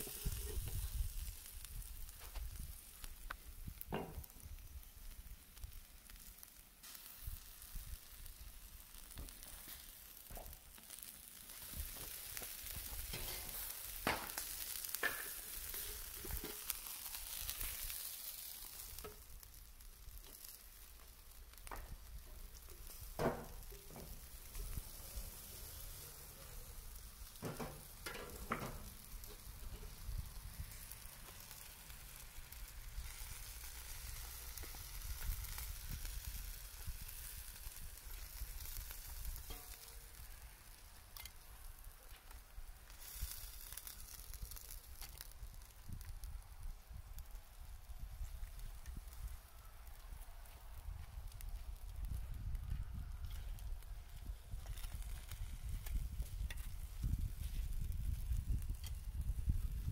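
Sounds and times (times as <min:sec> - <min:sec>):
skewers sizzling on grill: 0:00.0 - 0:59.9
sharp clicks and knocks: 0:27.4 - 0:29.9.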